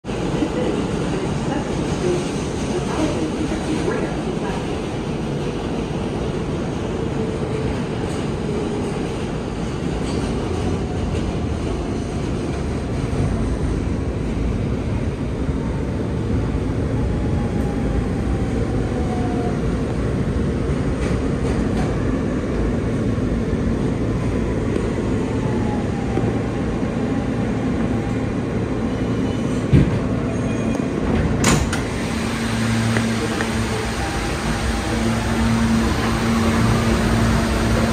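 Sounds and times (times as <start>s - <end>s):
wheels rumbling on rails: 16.1s - 37.9s.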